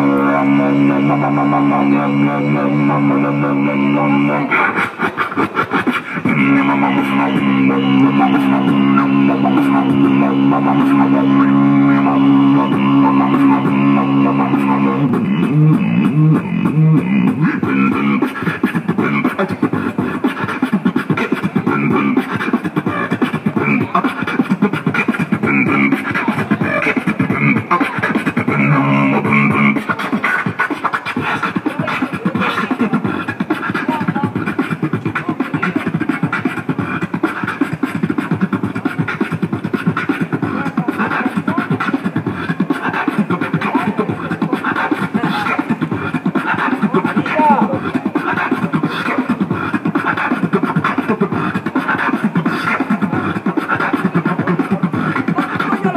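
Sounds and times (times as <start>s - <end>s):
fast vocal drum beats: 0.0s - 55.9s
low buzzing bass tone: 6.3s - 17.2s.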